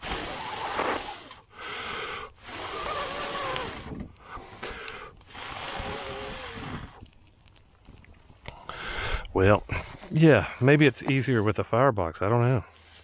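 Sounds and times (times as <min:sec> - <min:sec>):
person blowing hard into embers: 0:00.0 - 0:07.1.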